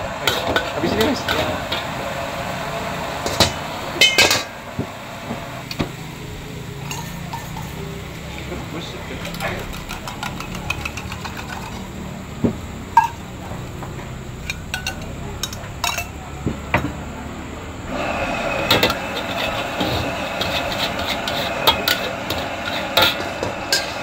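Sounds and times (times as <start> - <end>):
frying hiss: 0.0 - 24.0
metal spatula scraping in wok: 0.2 - 4.5, 6.8 - 7.9, 9.1 - 11.9, 17.9 - 24.0.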